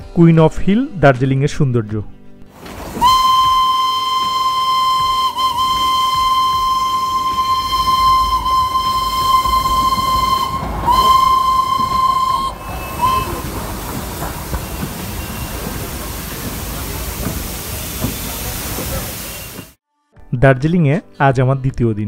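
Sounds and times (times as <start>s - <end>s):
steam hissing: 2.6s - 19.8s
steam locomotive whistle: 2.6s - 19.8s.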